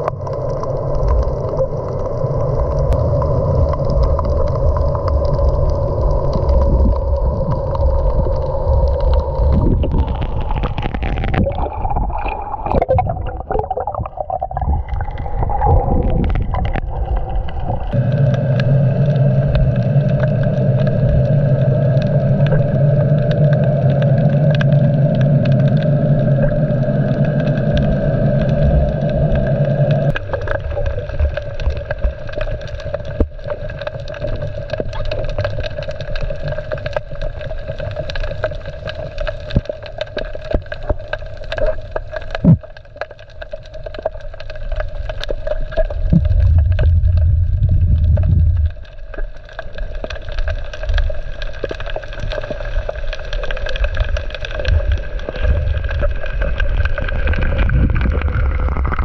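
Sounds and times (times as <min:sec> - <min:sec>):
rumbling water: 0:00.0 - 0:59.0
wind noise: 0:02.6 - 0:32.2, 0:46.0 - 0:48.8, 0:54.6 - 0:59.0.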